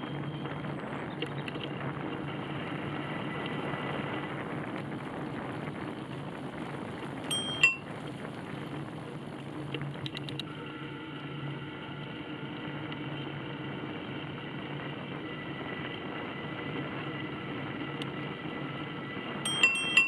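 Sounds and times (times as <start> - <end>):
ride humming: 0.0 - 20.0
small bell ringing: 7.3 - 7.8, 19.5 - 20.0.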